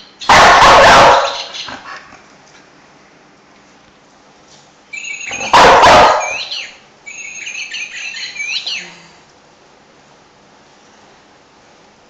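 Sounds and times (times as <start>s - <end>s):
dog barking: 0.2s - 1.6s, 5.3s - 6.5s
electronic chirping bird call: 4.9s - 5.5s, 6.2s - 8.9s.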